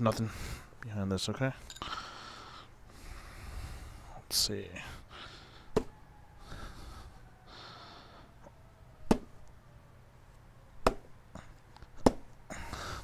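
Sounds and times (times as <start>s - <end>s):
breathing close to microphone: 1.8s - 4.1s, 6.4s - 8.4s, 12.5s - 13.0s.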